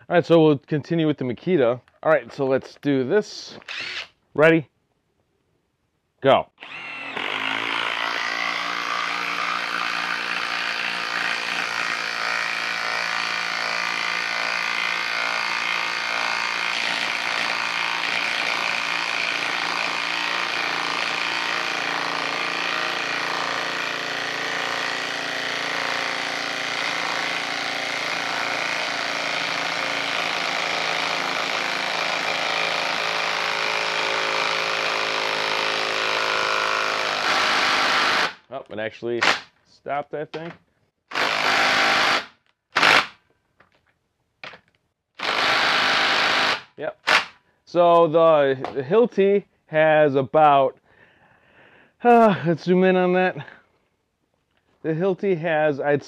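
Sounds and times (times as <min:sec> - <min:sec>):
impact driver hammering: 0:06.6 - 0:38.4, 0:45.2 - 0:47.4.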